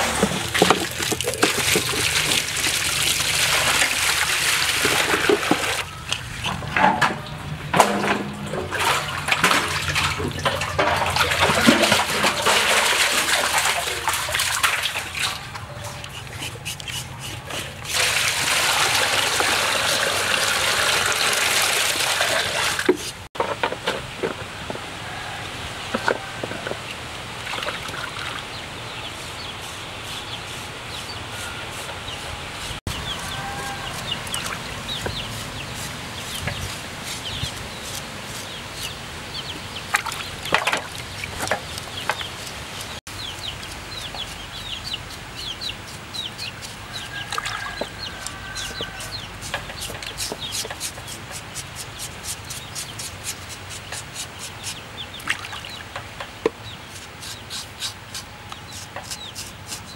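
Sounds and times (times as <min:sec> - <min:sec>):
hands scrubbing in water: 0:00.0 - 0:06.6, 0:08.5 - 0:23.3
water splashing: 0:00.0 - 0:23.3, 0:27.2 - 0:28.7, 0:33.1 - 0:43.9, 0:54.0 - 0:56.0
chickens clucking and cheeping: 0:42.8 - 0:51.1.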